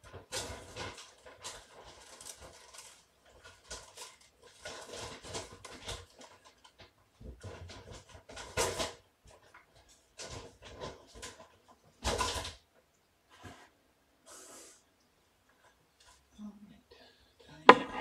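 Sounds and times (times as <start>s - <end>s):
kitten paws pattering and rustling: 0.0s - 13.7s.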